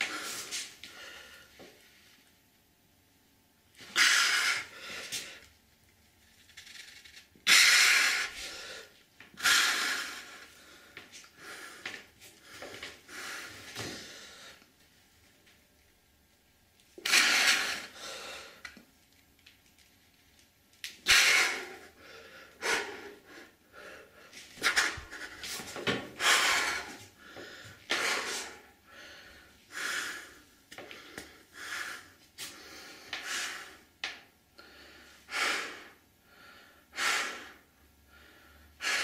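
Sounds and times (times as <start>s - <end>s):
man breathing hard: 0.0s - 1.7s, 3.8s - 5.5s, 7.5s - 14.7s, 17.0s - 18.8s, 21.0s - 34.0s, 34.6s - 39.0s.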